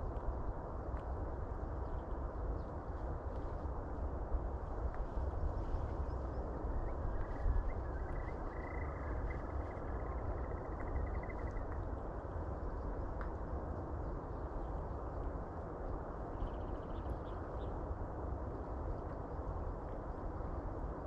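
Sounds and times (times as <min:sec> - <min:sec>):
wind rumbling on microphone: 0:00.0 - 0:21.0
faint chirps: 0:06.0 - 0:11.9.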